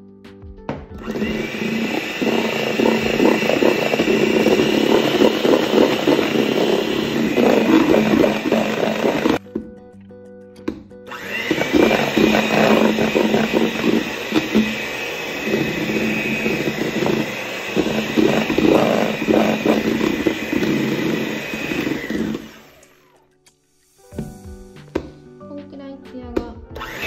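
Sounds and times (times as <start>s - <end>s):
beaters churning in bowl: 1.0s - 9.4s, 11.1s - 23.0s
electric hand mixer whining: 1.0s - 9.4s, 11.1s - 23.2s, 26.8s - 27.0s.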